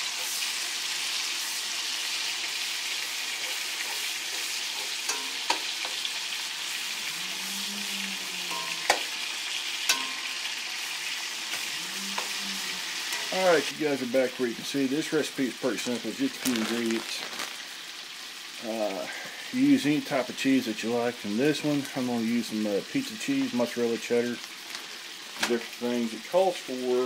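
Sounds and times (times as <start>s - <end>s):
bacon sizzling in skillet: 0.0s - 27.0s
tongs clicking against pan: 3.4s - 6.0s, 9.8s - 10.4s.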